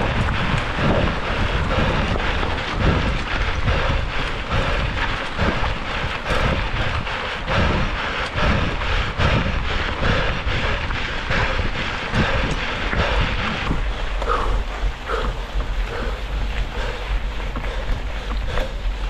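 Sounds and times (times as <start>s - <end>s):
bike clicks and rattles: 0.0s - 19.0s
wind buffeting microphone: 0.0s - 19.0s
tyres crunching over gravel: 10.7s - 19.0s.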